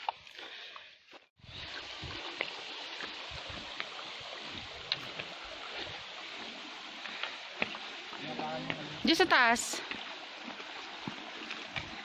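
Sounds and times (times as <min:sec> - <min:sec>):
stream water rushing over rock: 0:01.4 - 0:12.0.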